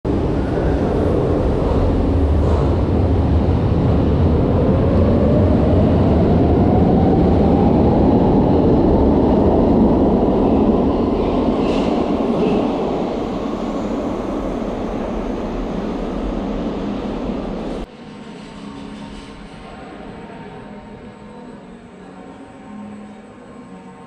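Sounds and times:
train wheels on rails: 11.2s - 19.8s.

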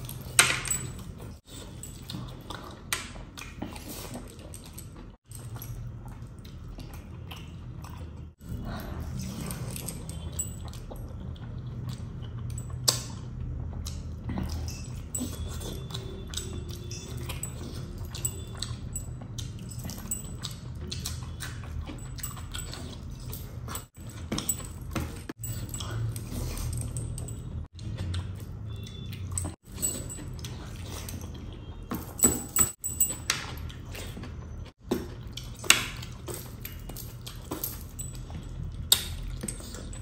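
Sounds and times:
metal rings and bracelets clinking: 0.0s - 2.4s, 14.5s - 34.1s, 35.5s - 40.0s
chewing: 0.0s - 32.0s, 33.0s - 40.0s.

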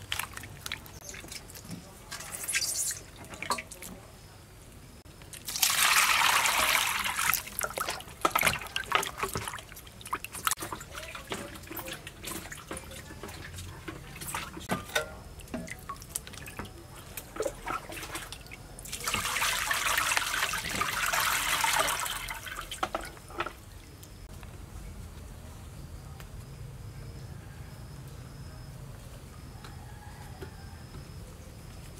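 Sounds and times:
running water pouring: 0.0s - 3.8s, 5.3s - 23.6s
splashes and drips: 0.0s - 4.0s, 5.3s - 24.3s.

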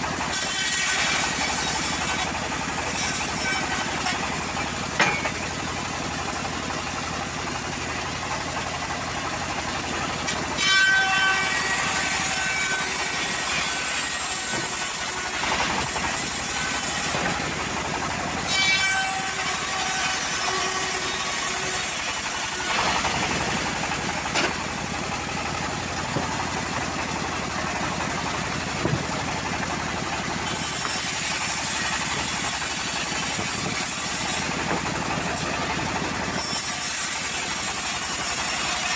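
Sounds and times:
band saw ripping through wood: 0.0s - 5.4s, 10.2s - 17.6s, 18.5s - 24.6s, 30.4s - 38.9s.

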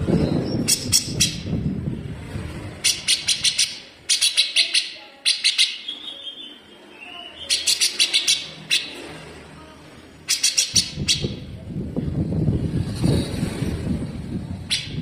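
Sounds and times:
bulbul rapid harsh song: 2.8s - 9.0s, 10.2s - 11.5s
low background rumble: 10.8s - 15.0s.

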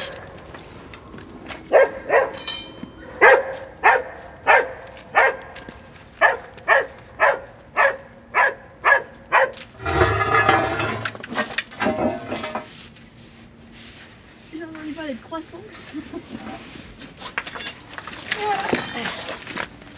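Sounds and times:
dog barking: 1.7s - 2.4s, 3.2s - 5.5s, 6.2s - 9.6s
rough rumbling scrape: 9.8s - 12.7s.

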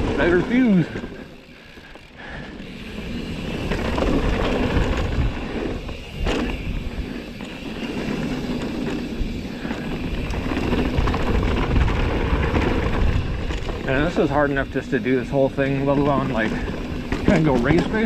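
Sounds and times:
bike rattling over bumps: 0.0s - 18.0s
bike tyres on dirt trail: 0.0s - 18.0s.

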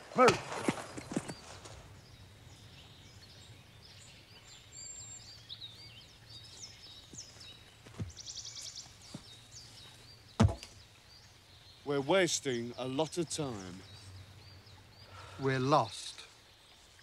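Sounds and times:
songbirds chirping and whistling: 0.0s - 17.0s
soft thud: 10.4s - 10.7s.

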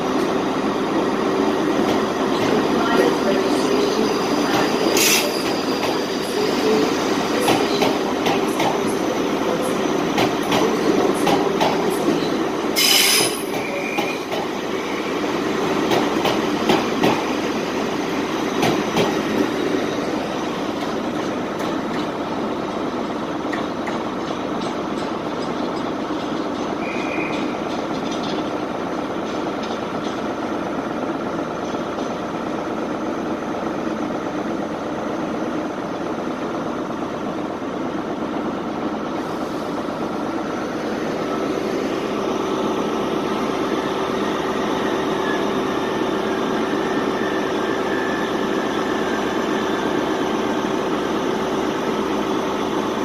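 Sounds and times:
train running noise: 0.0s - 53.0s
train wheels clicking and squealing: 1.7s - 9.0s, 9.8s - 17.4s, 23.5s - 30.3s, 44.1s - 50.6s.

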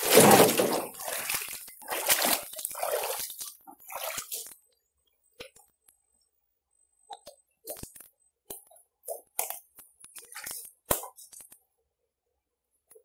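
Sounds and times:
river water splashing: 0.0s - 4.4s.

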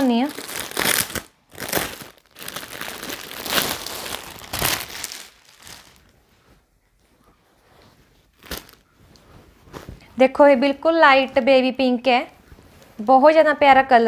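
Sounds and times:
plastic packaging crinkling: 0.0s - 6.1s, 8.3s - 8.9s.

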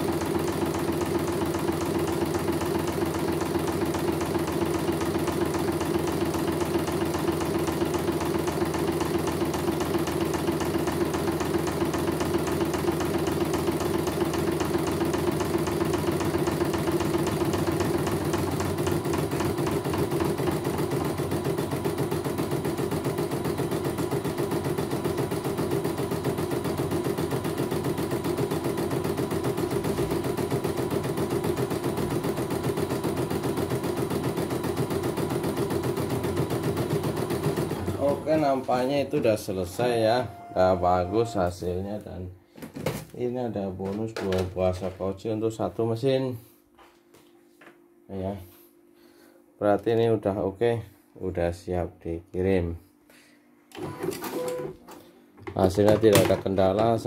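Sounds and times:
embroidery machine stitching: 0.0s - 38.8s, 53.7s - 54.8s.

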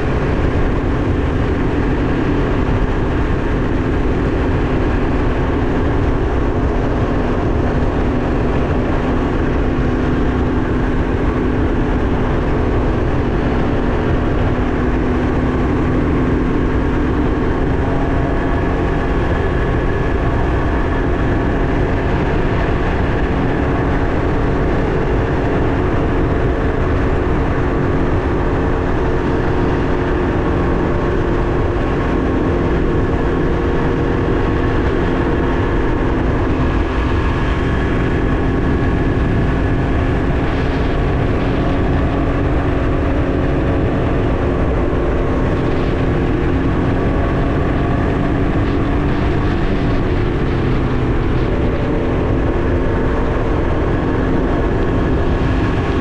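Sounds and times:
engine running at cruising speed: 0.0s - 56.0s
wind rumble on microphone: 0.0s - 56.0s.

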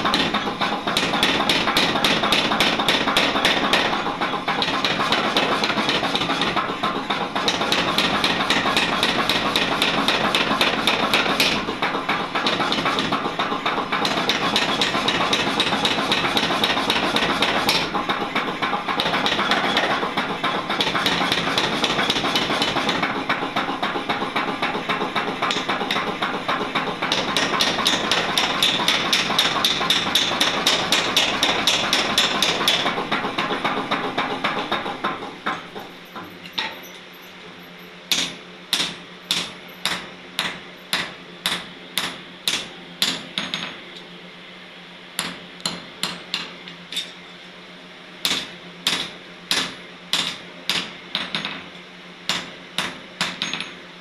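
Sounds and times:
hand hammer striking iron on anvil: 0.0s - 4.0s, 7.4s - 11.7s, 12.4s - 18.2s, 24.1s - 36.8s, 38.1s - 43.8s, 45.2s - 47.2s, 48.2s - 51.6s, 52.3s - 53.8s
power hammer pounding iron: 0.0s - 36.9s, 38.1s - 43.8s, 45.2s - 47.1s, 48.2s - 53.8s.

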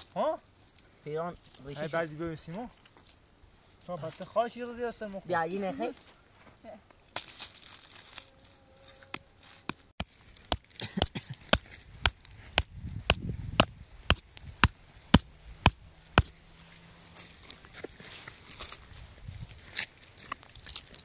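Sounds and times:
stick knocking into stony soil: 9.6s - 16.4s.

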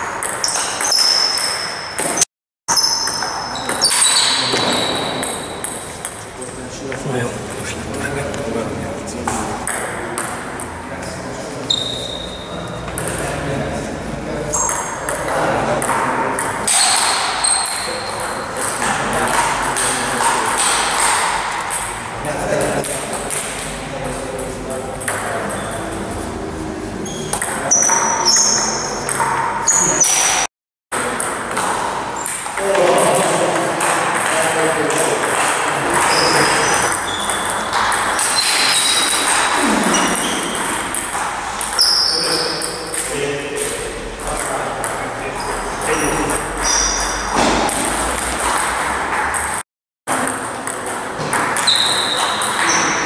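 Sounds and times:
table tennis ball hits: 0.0s - 6.3s, 9.2s - 11.1s, 11.8s - 13.4s, 14.5s - 22.1s, 22.7s - 23.8s, 24.4s - 25.7s, 27.1s - 45.0s, 45.9s - 53.0s.

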